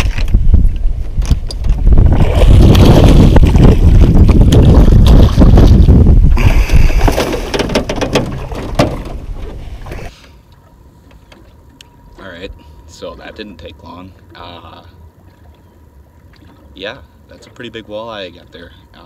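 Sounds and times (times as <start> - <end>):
wind buffeting microphone: 0.0 - 9.8
water splashing: 2.0 - 10.1.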